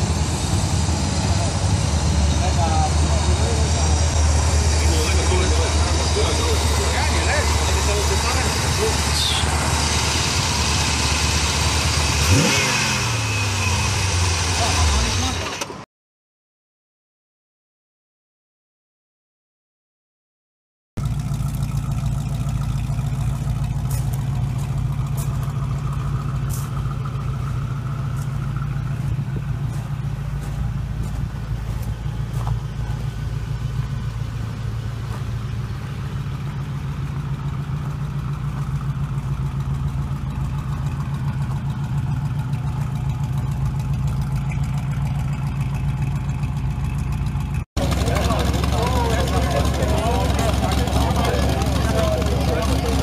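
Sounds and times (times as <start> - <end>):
car engine idling: 0.0 - 15.6, 21.0 - 53.0.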